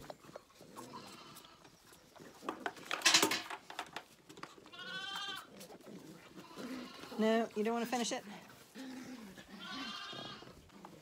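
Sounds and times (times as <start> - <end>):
lambs bleating: 0.8 - 1.6, 4.6 - 5.5, 6.3 - 7.4, 9.3 - 10.6.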